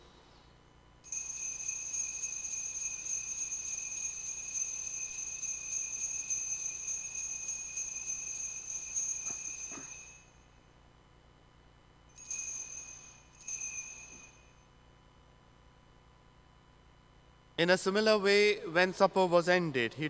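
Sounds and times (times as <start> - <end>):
altar bells jingling: 1.1 - 10.4, 12.2 - 14.7.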